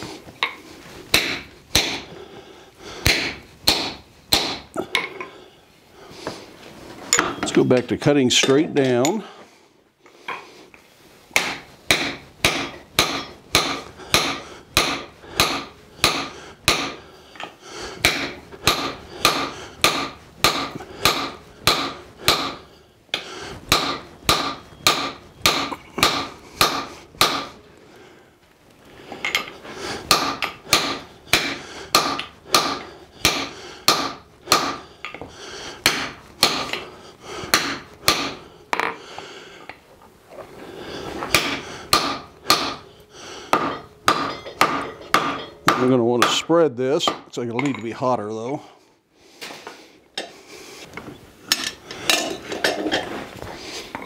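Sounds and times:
hammer striking chisel on hot steel: 0.4s - 2.1s, 3.0s - 5.3s, 11.3s - 27.7s, 29.2s - 39.0s, 41.2s - 47.9s.

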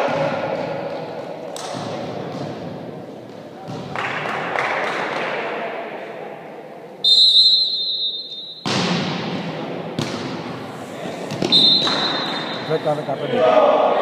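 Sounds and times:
murmur of voices: 0.0s - 2.2s, 10.5s - 11.5s, 12.3s - 14.0s
referee's whistle blast: 7.0s - 8.7s, 11.4s - 12.8s
volleyball hit echoing: 8.6s - 10.6s, 11.3s - 12.6s.

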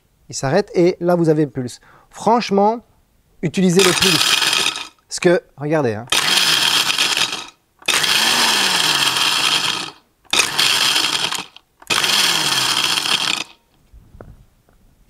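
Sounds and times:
blender crushing ice: 3.8s - 5.0s, 6.1s - 13.6s.

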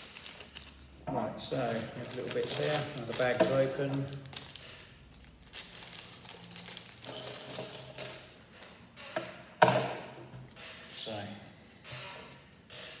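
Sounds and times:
plastic bag crinkling: 0.0s - 7.9s.

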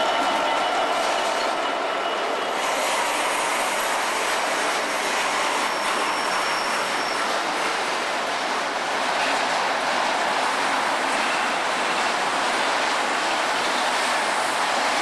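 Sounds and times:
high wheel squeal: 5.3s - 7.5s.

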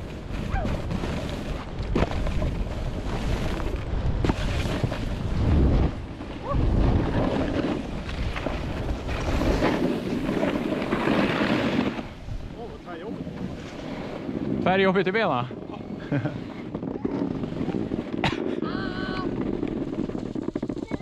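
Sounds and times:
skis scraping on snow: 0.0s - 21.0s
wind rushing over microphone: 0.0s - 21.0s.

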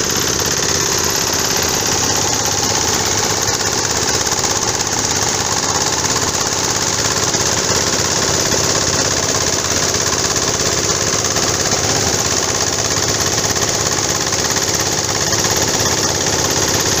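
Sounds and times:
wood shredder running: 0.0s - 17.0s.

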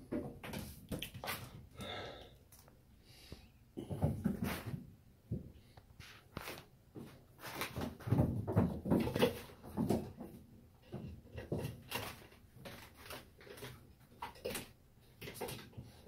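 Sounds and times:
paws scrabbling on a bathtub: 6.4s - 16.0s.

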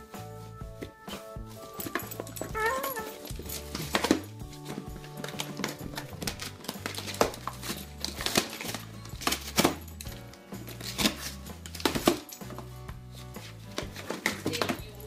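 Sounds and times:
background music with low notes: 0.0s - 15.0s
paper and cardboard tearing: 5.0s - 9.8s, 10.6s - 12.2s.

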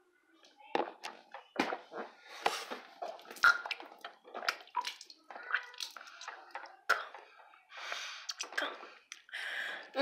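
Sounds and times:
person gulping and gurgling water: 3.0s - 7.5s, 8.2s - 9.4s.

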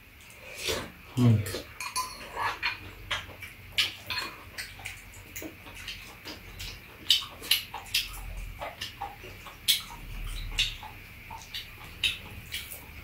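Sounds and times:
spoons clinking on ceramic bowls: 1.8s - 2.5s.

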